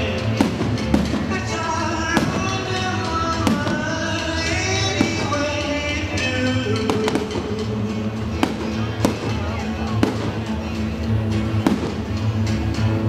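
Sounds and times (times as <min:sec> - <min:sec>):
fireworks bangs: 0:00.0 - 0:12.4
music playing: 0:00.0 - 0:13.0.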